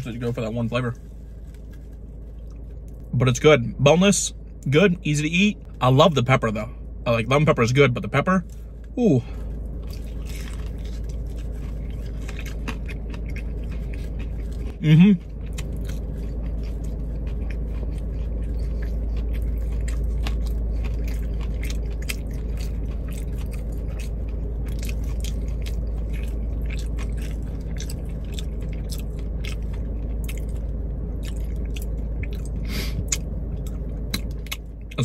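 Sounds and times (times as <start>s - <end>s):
steady low hum: 0.0s - 35.0s
chewing crunches: 8.4s - 35.0s.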